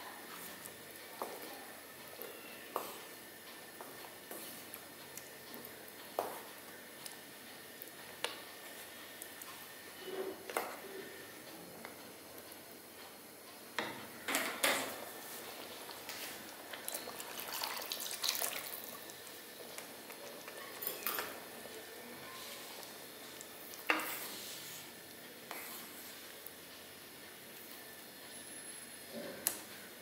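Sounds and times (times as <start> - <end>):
spatula scraping a pan: 23.9 - 24.9, 25.5 - 26.2.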